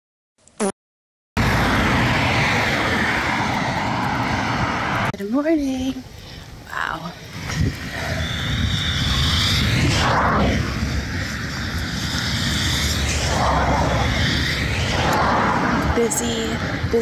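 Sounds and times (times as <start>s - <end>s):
cars passing: 1.4s - 5.2s, 6.4s - 17.0s
low traffic rumble: 1.4s - 17.0s.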